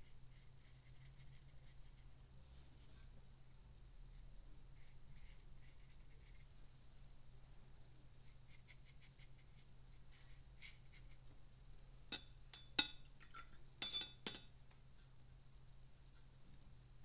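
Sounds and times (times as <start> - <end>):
paintbrush clinking on a cup: 12.1 - 14.6.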